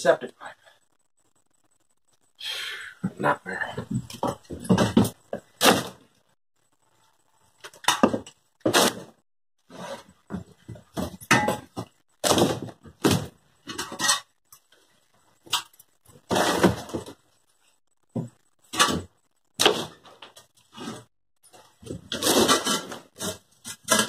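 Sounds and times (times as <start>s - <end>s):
shovel scraping dirt: 22.1s - 24.0s.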